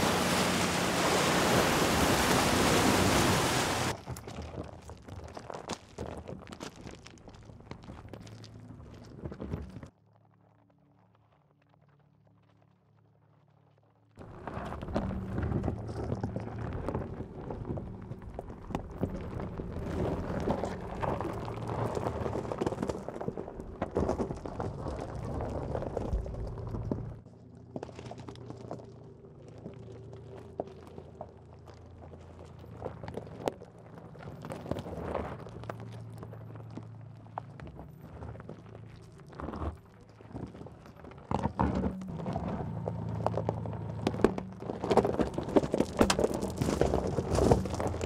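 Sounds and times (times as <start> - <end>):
low steady hum: 0.0 - 4.2, 14.2 - 48.0
tyres crunching over gravel: 0.0 - 12.5, 14.2 - 48.0.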